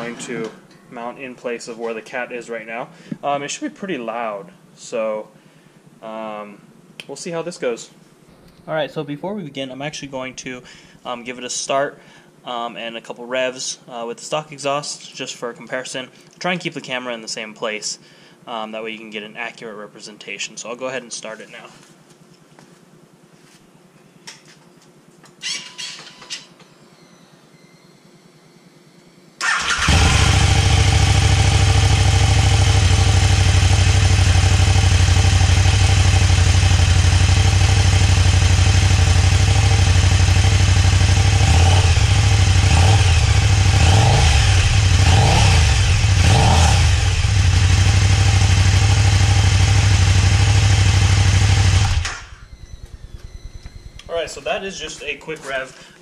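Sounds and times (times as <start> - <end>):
motorcycle engine idling and revving: 29.4 - 54.9.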